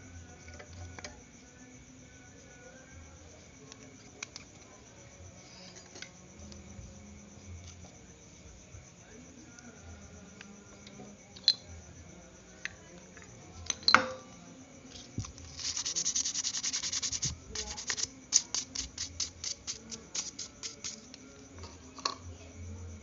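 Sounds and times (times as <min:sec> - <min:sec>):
hand scraping metal part: 0:15.0 - 0:21.0.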